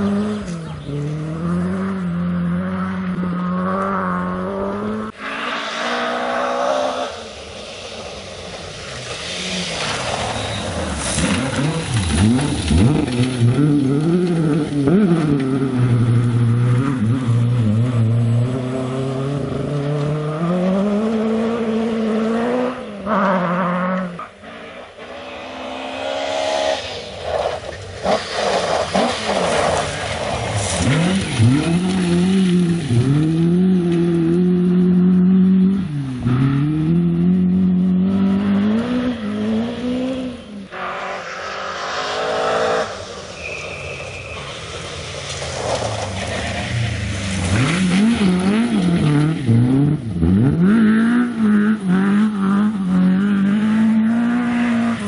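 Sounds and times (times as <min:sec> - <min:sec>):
rally car engines revving: 0:00.0 - 0:55.0
gravel thrown from tyres: 0:07.2 - 0:14.8, 0:27.0 - 0:33.2, 0:43.2 - 0:49.2.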